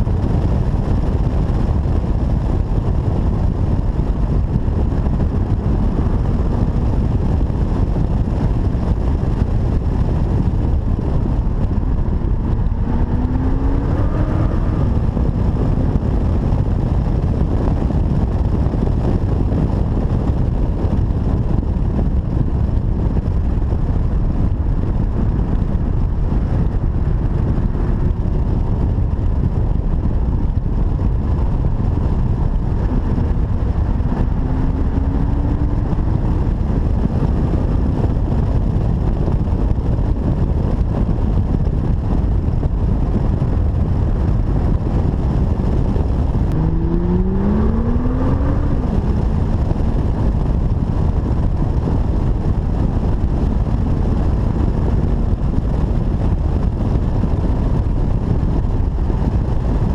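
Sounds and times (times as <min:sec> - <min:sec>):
wind and road noise in car: 0:00.0 - 0:59.9
rising engine note: 0:12.0 - 0:15.7, 0:46.4 - 0:49.9.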